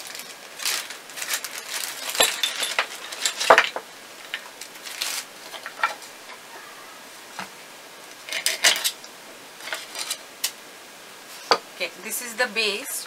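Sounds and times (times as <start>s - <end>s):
plastic bag rustling: 0.0s - 7.4s, 8.0s - 10.6s
wooden parts and screw clinking: 0.1s - 4.5s, 5.4s - 6.4s, 8.2s - 10.6s.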